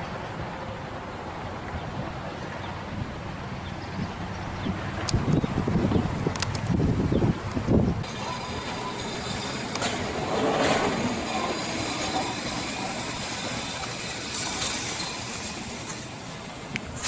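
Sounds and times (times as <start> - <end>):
street traffic noise: 0.0 - 17.0.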